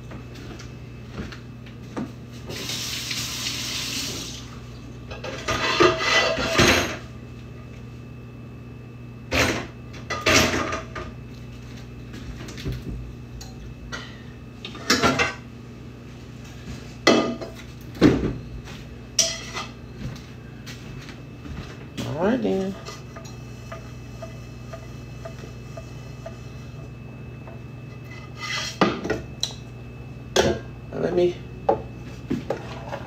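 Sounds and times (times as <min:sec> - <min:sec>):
steady low hum: 0:00.0 - 0:33.0
kitchen tap running: 0:02.5 - 0:04.5
pans and dishes clattering: 0:05.1 - 0:07.0.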